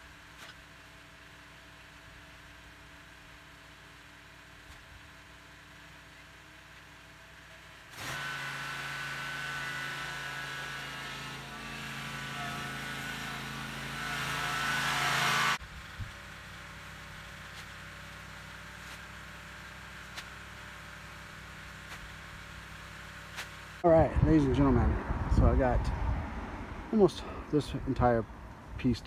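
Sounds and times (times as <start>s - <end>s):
mower engine running: 6.9s - 23.8s.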